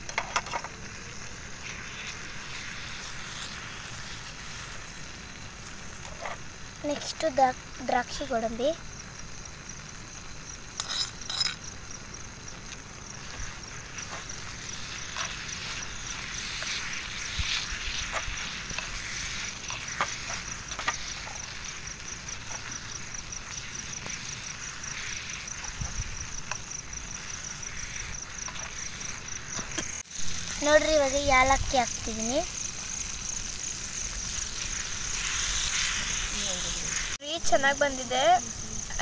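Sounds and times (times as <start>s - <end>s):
crickets chirping: 0.0s - 39.0s
spoon scraping in clay pot: 10.7s - 11.6s.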